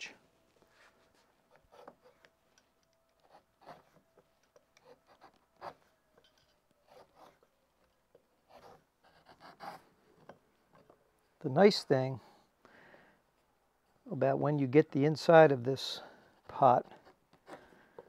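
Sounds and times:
gouge scraping wood: 1.5s - 2.3s, 3.2s - 7.5s, 8.1s - 10.9s.

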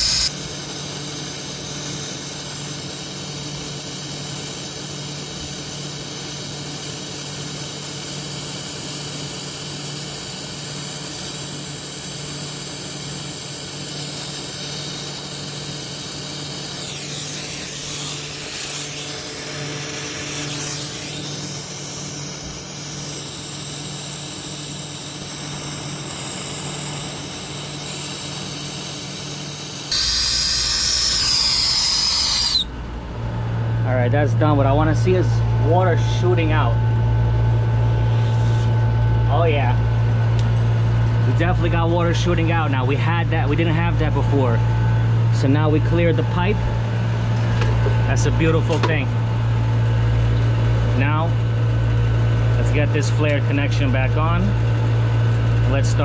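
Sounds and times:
torch flame hissing: 0.0s - 32.7s.

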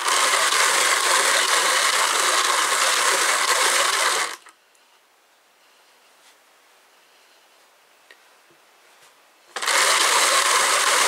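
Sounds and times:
drum carder running: 0.0s - 4.5s, 9.5s - 11.0s.

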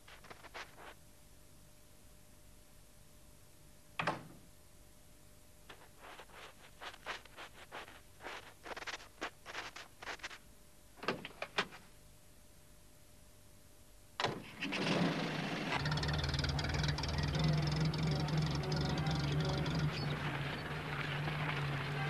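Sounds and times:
footsteps crunching through snow: 0.0s - 1.0s, 5.7s - 10.4s.

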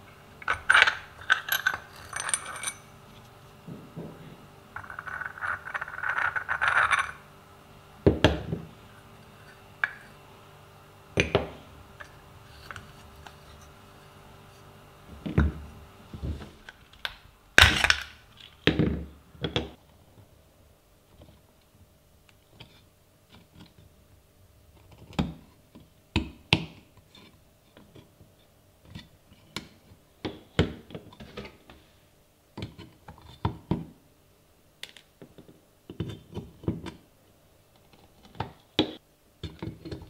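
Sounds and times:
metal parts clinking: 0.4s - 2.9s.

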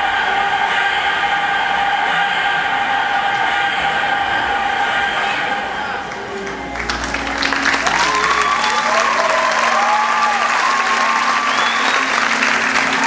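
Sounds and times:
cheering calls: 0.0s - 13.0s
audience applauding: 5.7s - 13.0s.

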